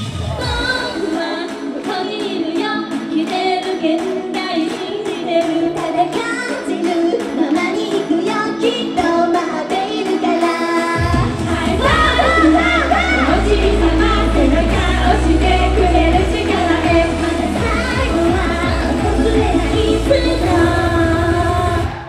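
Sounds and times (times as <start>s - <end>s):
pop backing track: 0.0s - 22.0s
woman singing: 0.2s - 22.0s
heavy bass: 11.0s - 22.0s.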